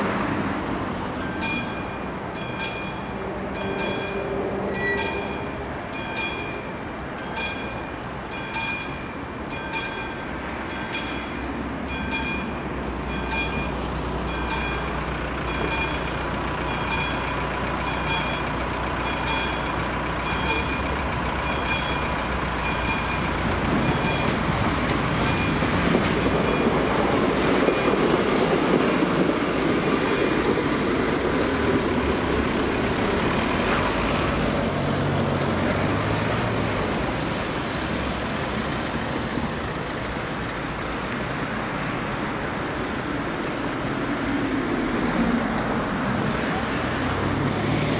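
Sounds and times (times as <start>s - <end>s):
train engine hum: 0.0s - 47.9s
train rumbling past: 0.0s - 47.9s
level crossing bell ringing: 1.2s - 24.4s.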